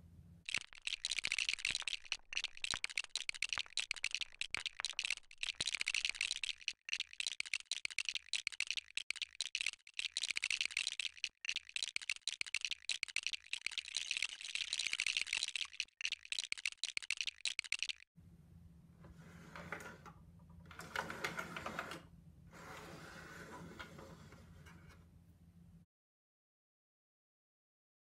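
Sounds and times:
plastic bricks clicking: 0.5s - 18.0s.

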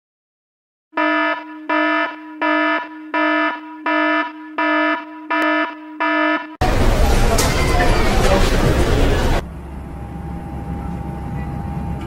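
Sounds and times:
electronic alarm beeping: 1.0s - 6.6s.

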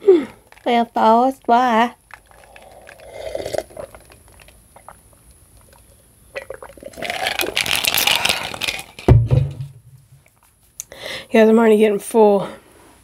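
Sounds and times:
liquid sloshing with ice: 0.4s - 5.0s, 6.4s - 9.1s
sipping from a glass: 2.2s - 8.6s.

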